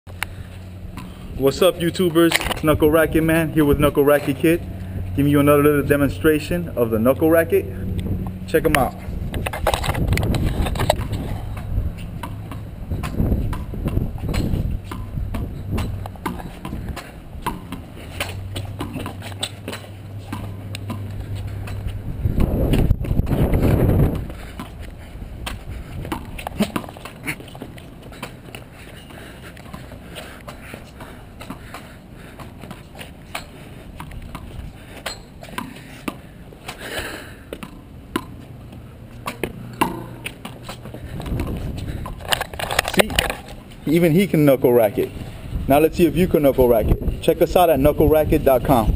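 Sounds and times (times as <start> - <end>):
ball knocking off rackets and wall: 9.4 - 23.4, 24.0 - 28.4, 39.2 - 43.6.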